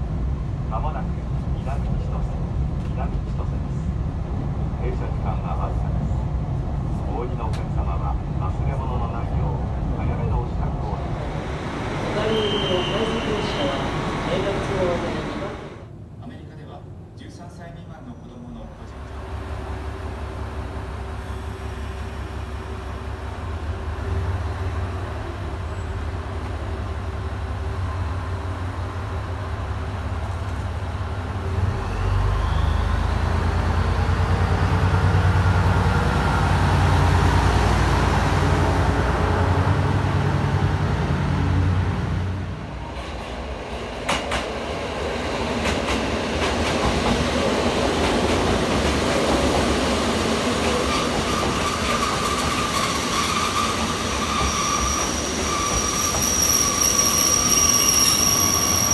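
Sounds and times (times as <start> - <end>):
railcar engine droning: 0.0 - 16.2, 18.0 - 58.9
electric train moving: 9.8 - 15.9, 19.0 - 58.9.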